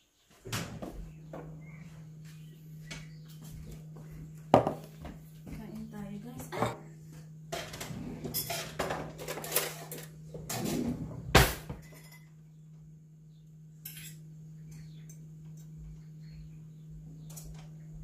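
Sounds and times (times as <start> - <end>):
low hum: 0.5 - 18.0
cutlery and dishes clinking: 7.5 - 10.1, 13.8 - 14.2.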